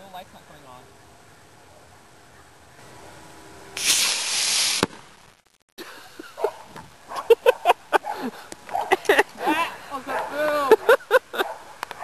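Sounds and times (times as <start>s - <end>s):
rocket motor rushing hiss: 3.7s - 5.4s
sharp crack: 3.8s - 5.7s
sharp pops: 3.8s - 5.7s
voices: 8.9s - 11.4s.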